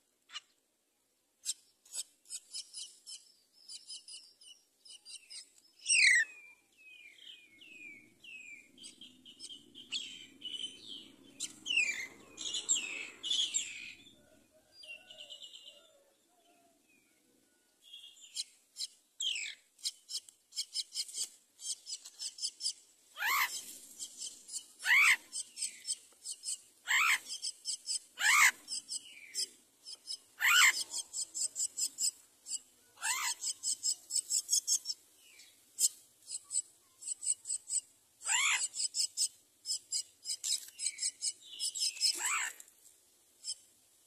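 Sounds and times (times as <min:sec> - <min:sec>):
high rasping chirps: 0:18.3 - 0:42.6.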